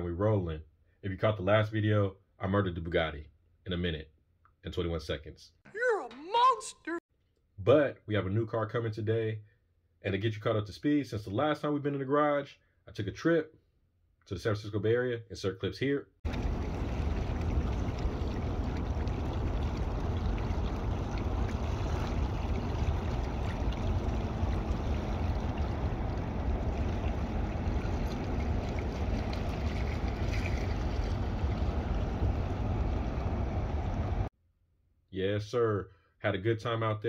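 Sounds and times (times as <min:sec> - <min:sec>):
steady rushing noise: 0:23.0 - 0:34.3.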